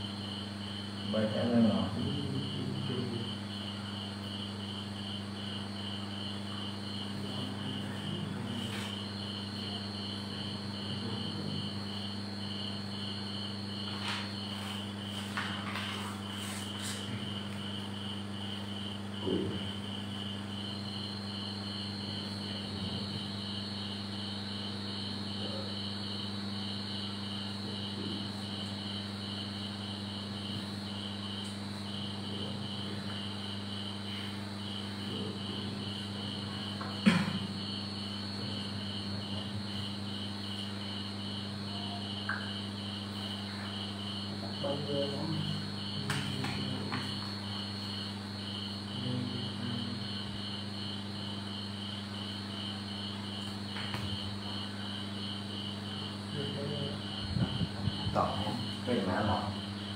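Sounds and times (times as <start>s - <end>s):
crickets chirping: 0.0s - 59.9s
sharp knock: 37.0s - 37.5s.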